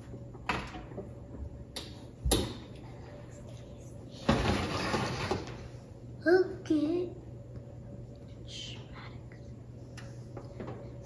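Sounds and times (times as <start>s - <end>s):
oven rack scraping: 4.3s - 5.6s.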